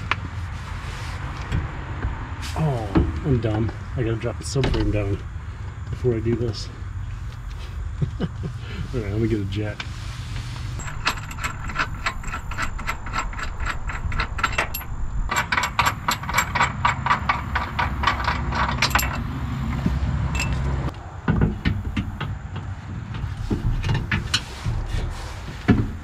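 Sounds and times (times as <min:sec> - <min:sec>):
steady low hum: 0:02.5 - 0:26.0
ratchet wrench clicking: 0:10.8 - 0:19.8.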